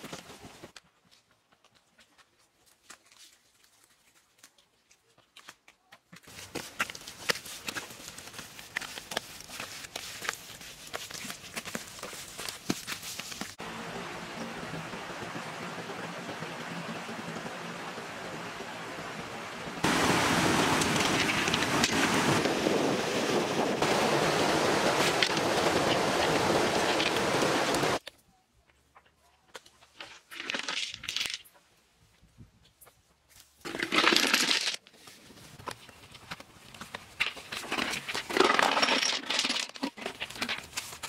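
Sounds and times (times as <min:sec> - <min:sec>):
scraping and rustling of earth: 0:02.1 - 0:13.6, 0:19.8 - 0:28.2, 0:32.2 - 0:41.0
rushing river water: 0:13.6 - 0:28.0.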